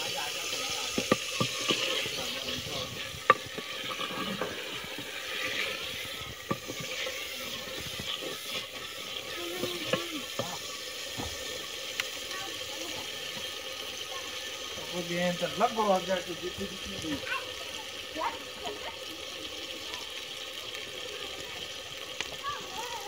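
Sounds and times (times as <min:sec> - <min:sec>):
wooden spatula stirring: 0:00.0 - 0:11.4
curry sizzling and bubbling: 0:00.0 - 0:23.0.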